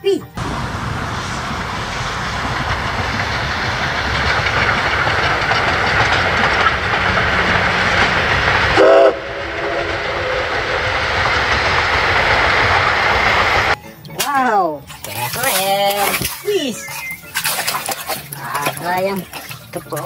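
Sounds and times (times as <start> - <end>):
steam locomotive running past: 0.4 - 13.8
train whistle blast: 8.7 - 10.9.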